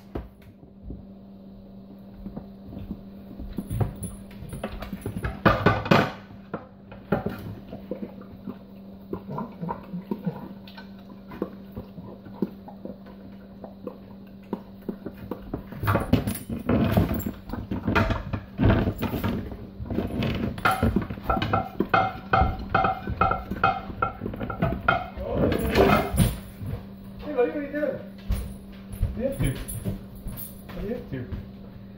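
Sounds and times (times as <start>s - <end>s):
dog licking: 7.6s - 15.7s
dishes clinking in metal sink: 20.6s - 26.4s.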